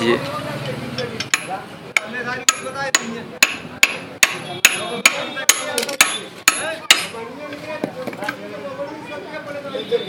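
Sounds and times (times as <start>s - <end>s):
hammer striking steel gear: 1.2s - 7.2s.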